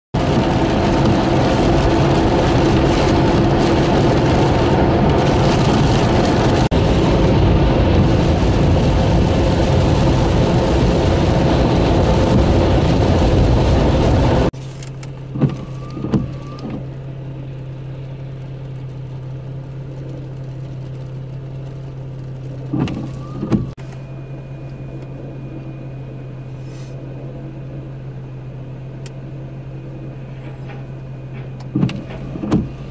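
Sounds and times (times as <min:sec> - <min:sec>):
tyre spray and road noise: 0:00.2 - 0:17.0
windshield wipers sweeping: 0:00.2 - 0:17.0, 0:18.7 - 0:23.9, 0:30.4 - 0:32.9
car engine hum: 0:00.2 - 0:32.9.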